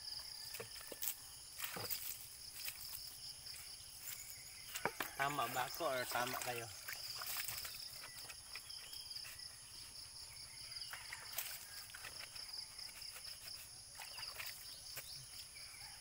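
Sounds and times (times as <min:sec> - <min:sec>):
water splashing and dripping: 0:04.7 - 0:08.6, 0:10.8 - 0:15.1.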